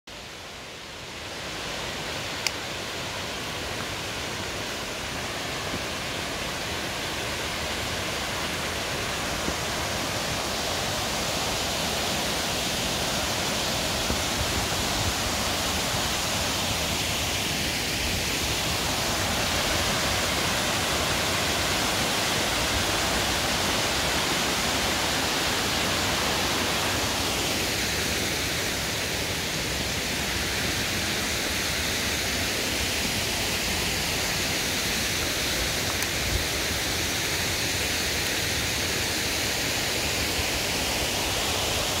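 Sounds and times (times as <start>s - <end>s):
waterfall rushing water: 0.1s - 42.0s.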